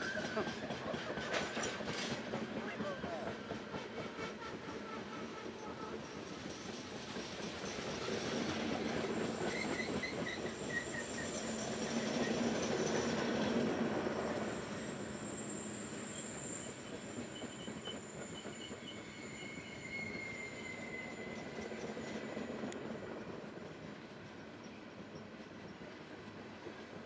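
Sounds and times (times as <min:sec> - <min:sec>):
train wheels rumbling on rails: 0:00.0 - 0:27.0
high-pitched wheel squeal: 0:14.7 - 0:22.4.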